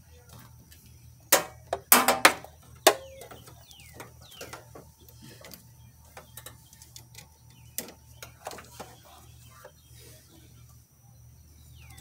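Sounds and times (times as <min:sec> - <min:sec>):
faint bird chirps: 0:02.8 - 0:12.0.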